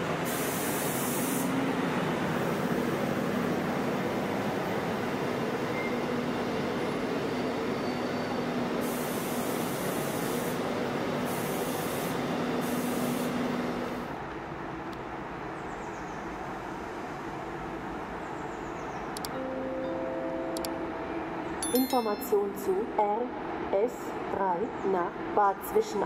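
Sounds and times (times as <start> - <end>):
passenger train rolling slowly: 0.0 - 26.0
bursts of hissing air: 0.2 - 1.6, 8.8 - 10.6, 11.2 - 13.4
station background: 19.1 - 26.0.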